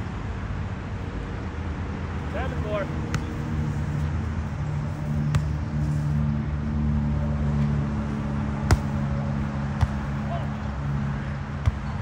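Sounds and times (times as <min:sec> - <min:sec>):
steady low hum: 0:02.2 - 0:12.0
volleyball being struck: 0:08.6 - 0:09.0, 0:09.7 - 0:10.2.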